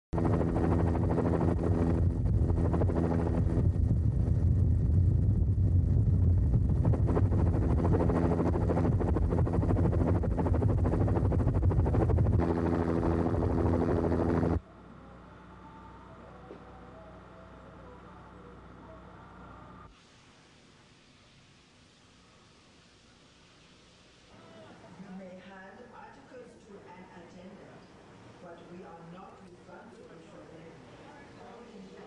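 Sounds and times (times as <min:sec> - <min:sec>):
mechanical drone with low rumble: 0:00.1 - 0:19.9.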